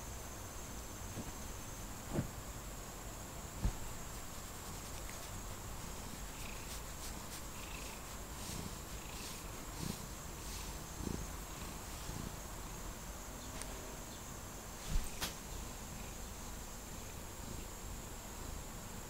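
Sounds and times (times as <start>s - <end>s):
cat purring: 4.0s - 13.0s.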